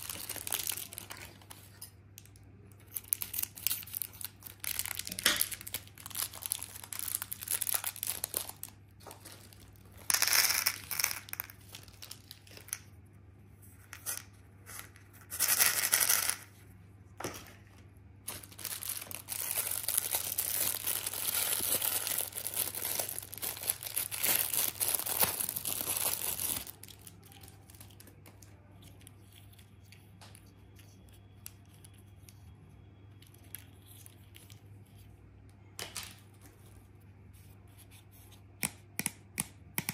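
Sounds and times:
plastic wrapper tearing: 0.0s - 12.8s, 18.3s - 28.4s
plastic wrapper crinkling: 0.0s - 12.9s, 18.2s - 29.7s.

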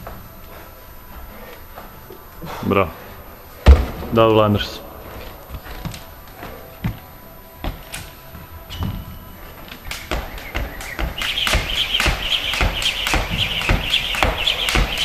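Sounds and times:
feet landing: 3.5s - 15.0s
jump rope slapping mat: 9.9s - 15.0s.

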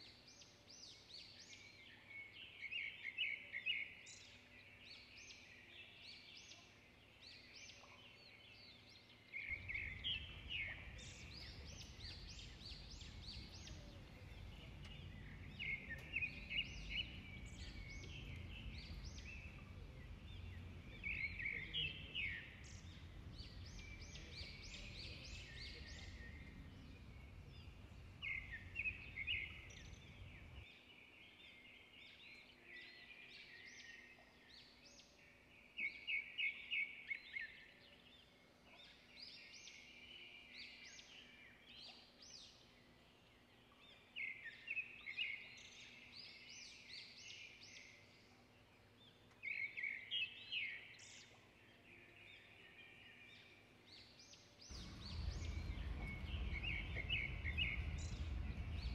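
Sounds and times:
songbirds chirping and trilling: 0.0s - 58.9s
low rumble: 9.5s - 30.6s, 54.7s - 58.9s.

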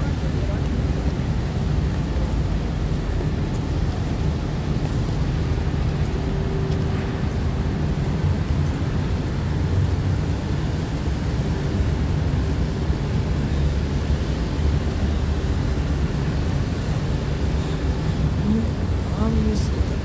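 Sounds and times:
distant traffic: 0.0s - 20.0s.

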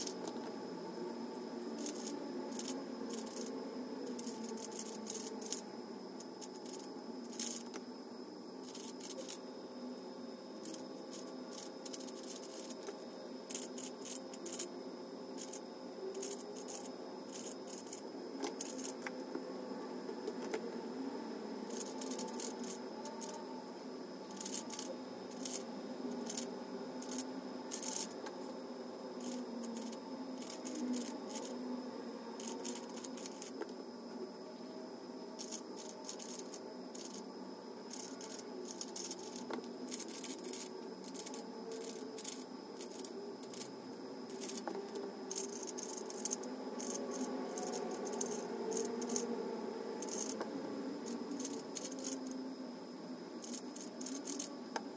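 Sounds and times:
background hum: 0.0s - 54.9s.

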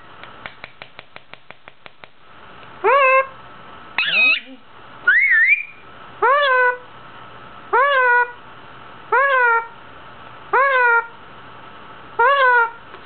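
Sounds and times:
parakeet calling: 4.0s - 6.8s, 7.7s - 8.4s, 9.1s - 9.8s, 10.5s - 11.2s, 12.2s - 12.8s.

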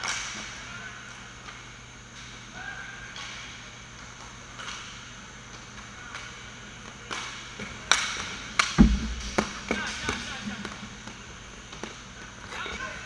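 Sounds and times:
hockey sticks and puck clacking: 4.1s - 6.4s, 7.0s - 12.0s
heavy thud of save: 8.8s - 9.8s.

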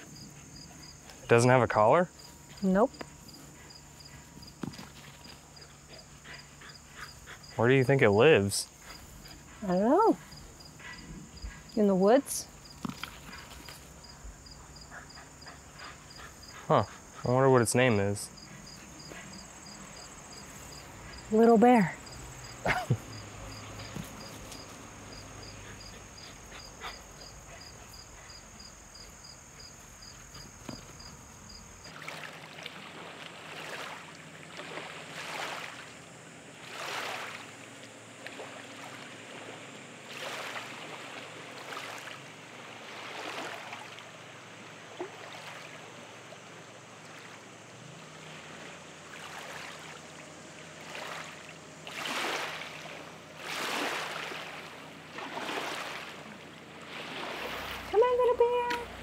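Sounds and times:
crickets chirping: 0.0s - 59.0s
water washing in swells: 31.8s - 36.0s, 36.6s - 59.0s.

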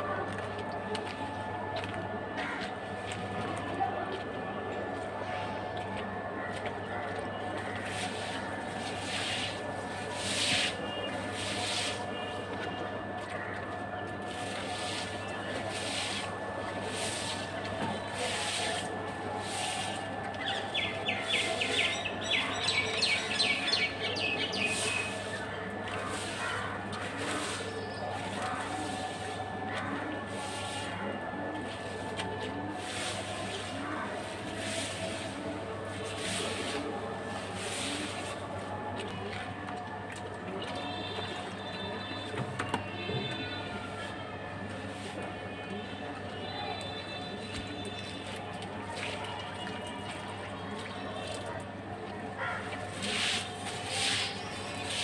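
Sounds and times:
broom sweeping wet floor: 7.6s - 12.7s, 14.2s - 39.6s, 44.8s - 45.3s, 52.6s - 55.0s.

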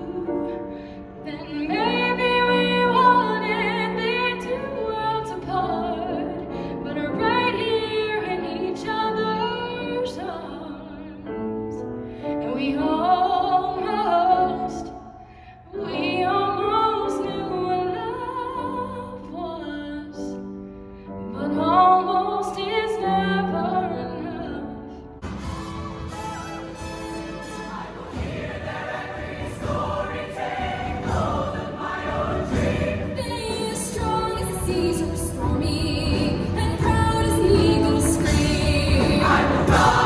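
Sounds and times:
grand piano: 0.0s - 40.0s
woman singing: 1.3s - 11.3s, 12.4s - 15.0s, 15.7s - 20.4s, 21.3s - 25.0s, 33.1s - 40.0s.

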